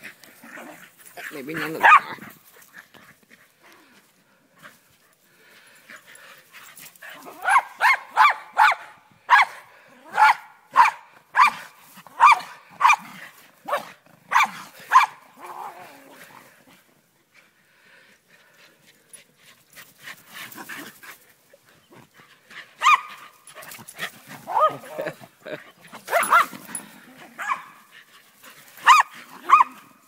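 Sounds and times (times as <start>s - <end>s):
dog barking: 1.6s - 2.2s, 7.4s - 13.0s, 13.7s - 15.2s, 22.8s - 23.1s, 24.5s - 24.8s, 26.1s - 26.5s, 27.4s - 27.8s, 28.8s - 29.8s.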